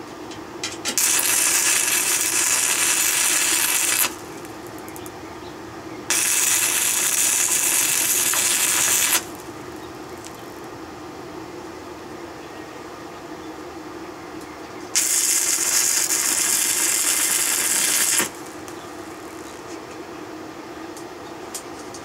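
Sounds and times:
low steady hum: 0.0 - 22.0
welding arc crackling and sizzling: 0.9 - 5.2, 6.1 - 10.7, 14.9 - 19.8.

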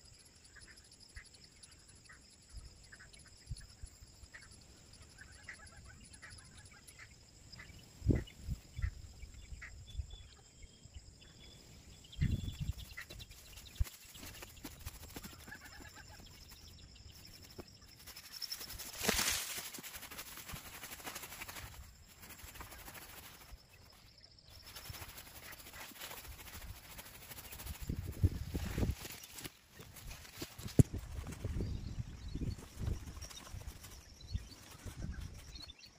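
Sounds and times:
faint bird calls: 0.5 - 27.8
grass rustling: 12.2 - 35.6.

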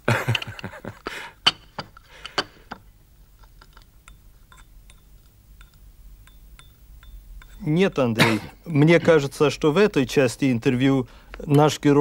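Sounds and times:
teaspoon clinking in china cup: 4.0 - 7.7.

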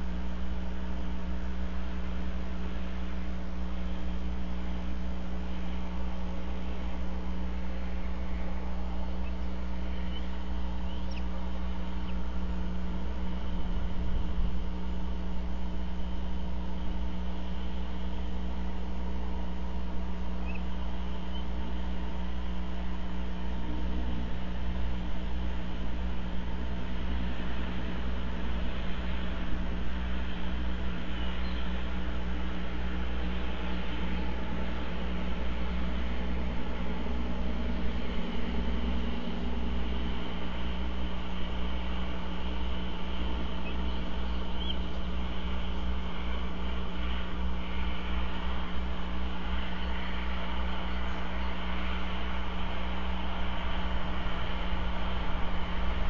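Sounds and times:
steady low hum: 0.0 - 56.0
faint high chirps: 9.2 - 11.4.

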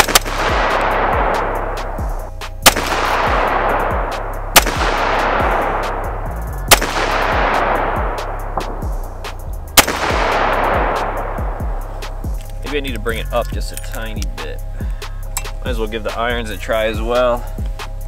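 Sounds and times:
rifle shots: 0.0 - 12.1
background music with steady beat: 0.0 - 18.0.

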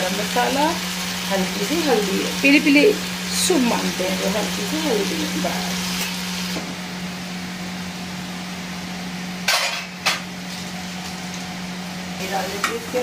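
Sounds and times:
masala sizzling in hot oil: 0.0 - 13.0
metal utensils clattering: 9.5 - 10.2.

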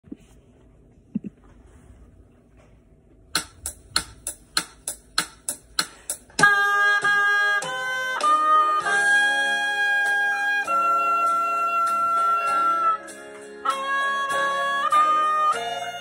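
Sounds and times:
oboe slow melody: 6.3 - 16.0.

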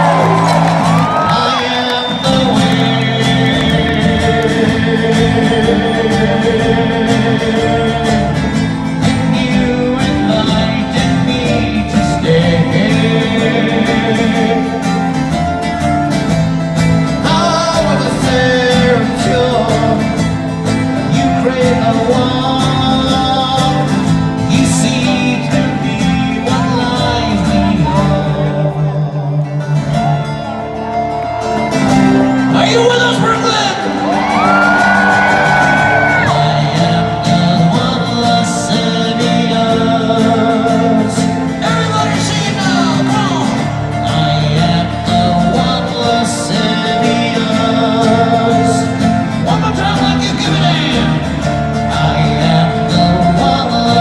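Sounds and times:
song with vocals and guitar: 0.0 - 54.0.

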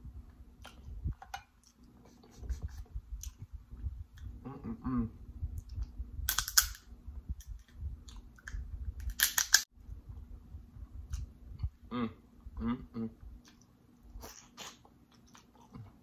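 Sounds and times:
closed-mouth hum: 0.0 - 16.0
soft chewing: 13.4 - 16.0.

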